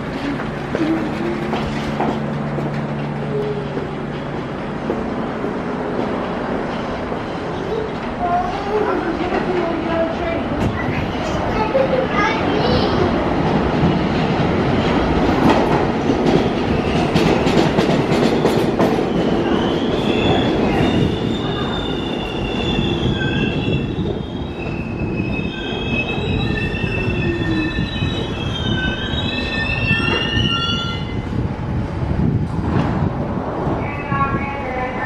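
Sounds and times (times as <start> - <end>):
train brakes squealing: 19.0 - 31.2.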